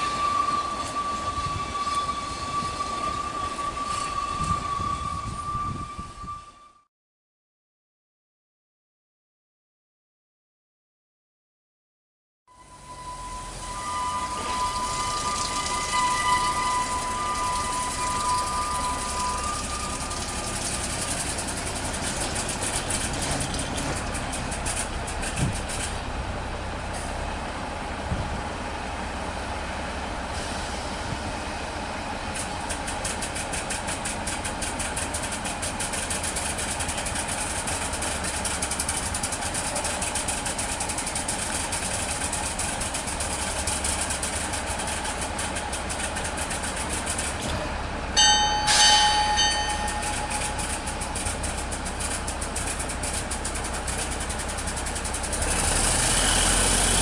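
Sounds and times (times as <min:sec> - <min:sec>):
diesel locomotive engine clatter: 0:00.0 - 0:06.8, 0:12.5 - 0:57.0
loud high-pitched tone: 0:12.5 - 0:22.5, 0:48.2 - 0:51.7.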